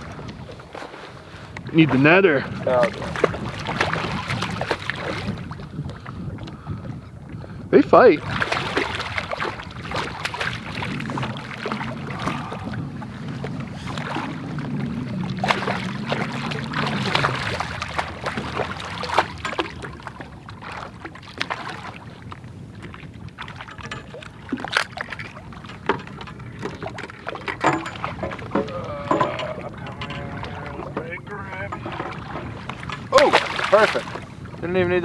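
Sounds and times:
water slapping against hull: 0.0s - 35.0s
fish splashing at surface: 32.0s - 34.2s.

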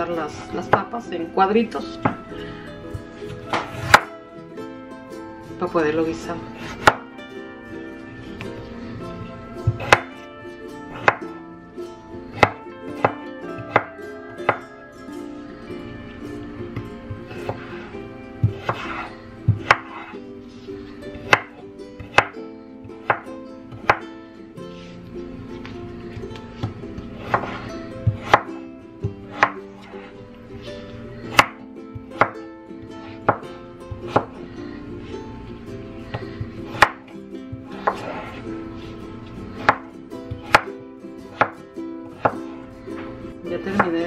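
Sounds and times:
background music: 0.0s - 44.0s
knife chopping on wooden board: 9.7s - 10.0s, 11.0s - 11.2s, 18.5s - 19.0s, 19.6s - 20.1s, 21.3s - 22.3s, 27.2s - 28.5s, 37.8s - 38.2s, 41.3s - 41.6s.

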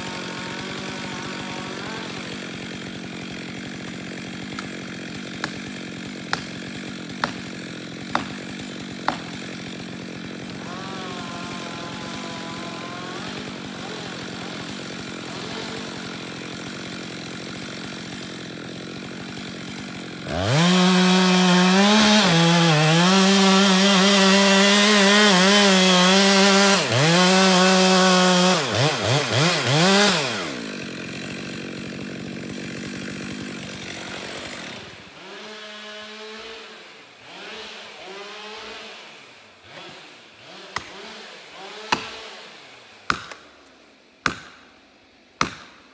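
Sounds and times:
chainsaw throttle blips: 0.0s - 35.7s
chainsaw cutting into tree trunk: 0.0s - 45.9s
chainsaw idling: 0.0s - 45.9s.

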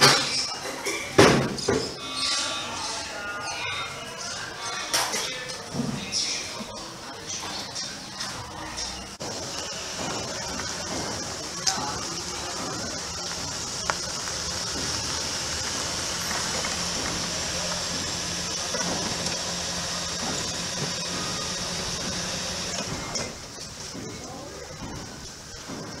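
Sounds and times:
car rolling on dirt: 9.2s - 26.0s.

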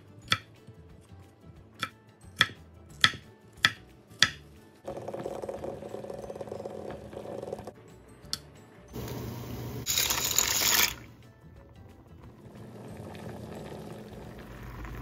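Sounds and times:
knife chopping on wooden board: 1.8s - 5.3s
water boiling in a pot: 9.0s - 15.0s.

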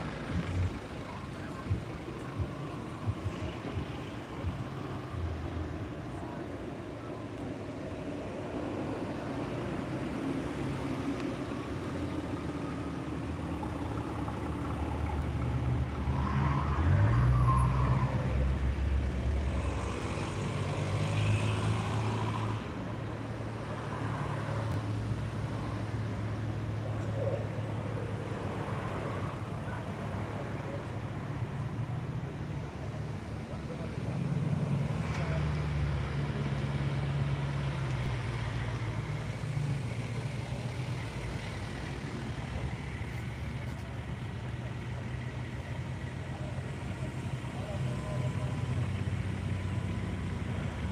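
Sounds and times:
cars driving past: 0.0s - 50.9s.

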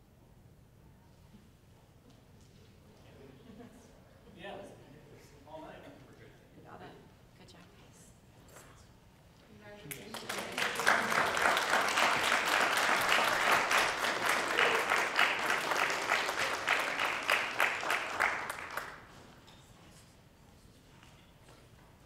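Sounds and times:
audience clapping: 9.8s - 19.2s.

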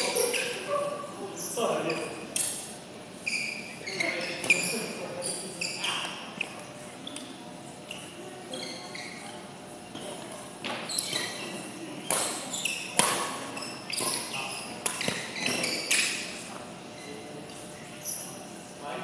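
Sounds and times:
sneakers squeaking on court floor: 0.0s - 0.7s, 1.7s - 18.5s
rackets hitting shuttlecock: 12.0s - 13.4s, 14.0s - 16.1s.

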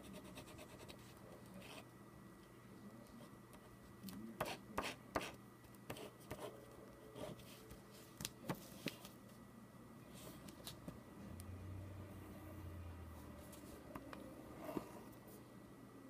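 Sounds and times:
pencil scratching on paper: 0.0s - 1.8s, 4.4s - 6.5s.

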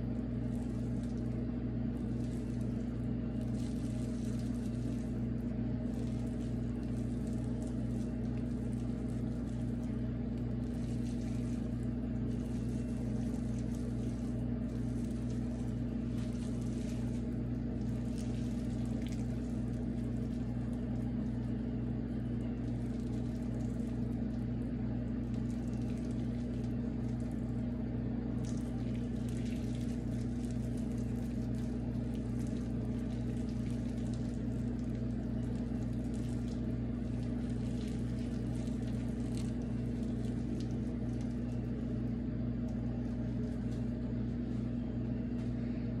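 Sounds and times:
faint crackles: 0.0s - 45.8s
steady low hum: 0.0s - 46.0s.

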